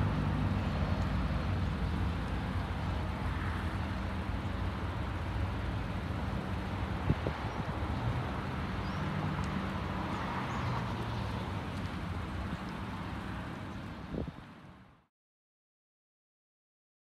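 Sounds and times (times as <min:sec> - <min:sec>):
diesel engine humming: 0:00.0 - 0:10.0.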